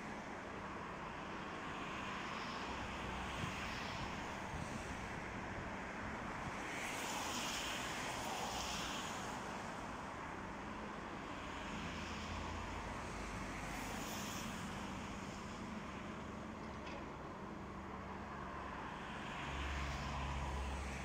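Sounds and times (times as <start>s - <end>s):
distant excavator engines rumbling: 15.2s - 18.1s.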